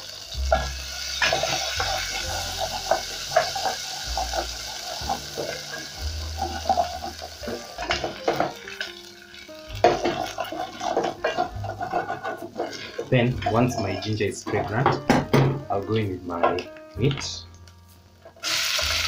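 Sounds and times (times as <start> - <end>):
ginger sizzling in hot oil: 0.0 - 19.0
wooden spoon scraping a pot: 1.2 - 8.8, 9.8 - 14.9.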